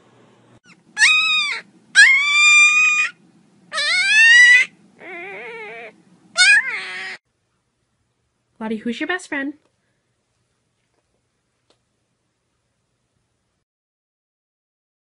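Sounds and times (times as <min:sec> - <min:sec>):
puppy whining: 0:00.6 - 0:07.2.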